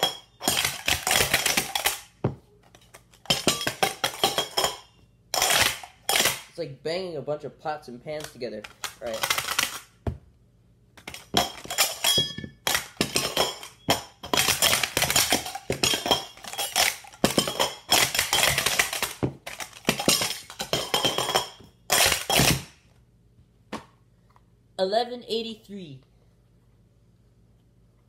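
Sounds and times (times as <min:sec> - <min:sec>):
metal cups clattering: 0:00.0 - 0:02.0, 0:02.8 - 0:06.4, 0:11.0 - 0:22.7.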